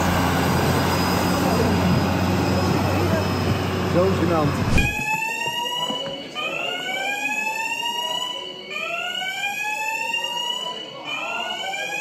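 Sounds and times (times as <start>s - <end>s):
fire alarm whooping tone: 4.7s - 12.0s.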